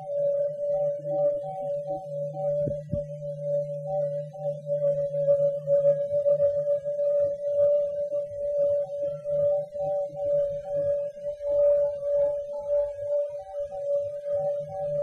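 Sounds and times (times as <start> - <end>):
low hum: 0.0 - 6.8
wavering electronic tone: 0.0 - 15.0.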